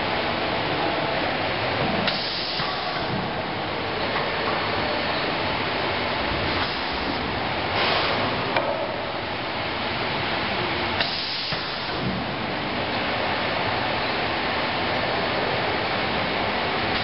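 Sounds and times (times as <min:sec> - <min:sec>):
conveyor line running: 0:00.0 - 0:17.0
air release hiss: 0:02.1 - 0:03.1, 0:11.0 - 0:12.1
sharp pneumatic click: 0:02.1 - 0:03.2, 0:07.8 - 0:08.3, 0:11.0 - 0:12.2.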